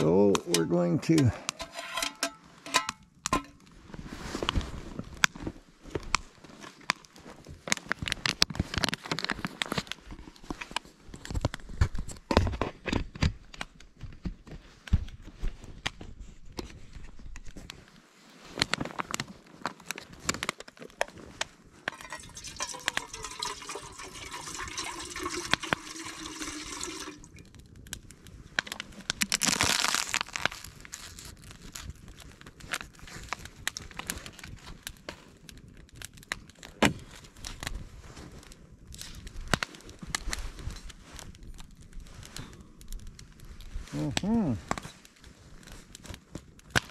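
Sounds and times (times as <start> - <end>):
water pouring into metal pot: 21.9 - 27.4.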